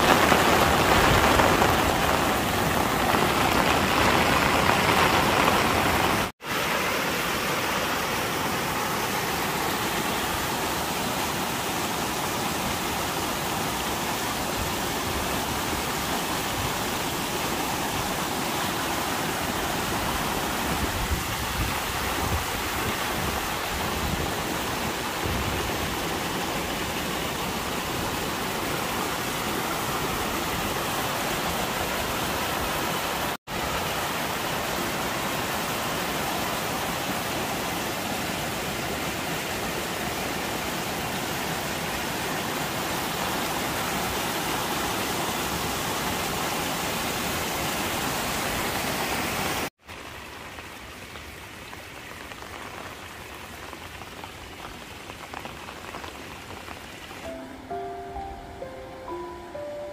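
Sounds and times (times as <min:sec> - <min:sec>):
muddy water rushing down gully: 0:00.0 - 0:57.4.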